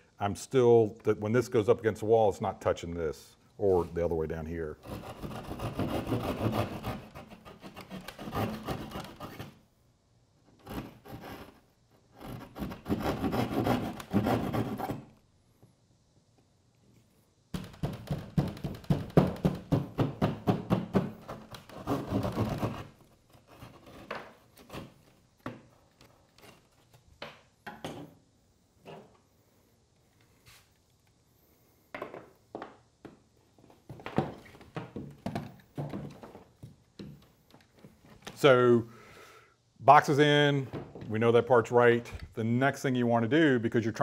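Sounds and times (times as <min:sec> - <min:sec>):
saw blade scraping drywall: 0:04.8 - 0:09.6, 0:10.5 - 0:15.1, 0:21.3 - 0:25.0.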